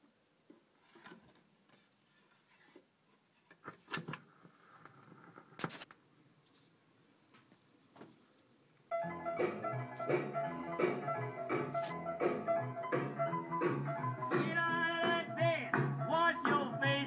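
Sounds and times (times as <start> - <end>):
music from record player: 8.9 - 17.0.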